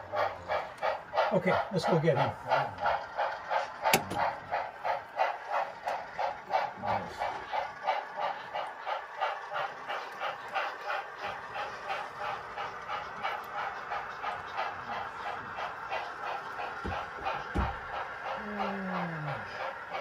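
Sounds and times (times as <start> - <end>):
model steam locomotive chuffing: 0.0 - 20.0.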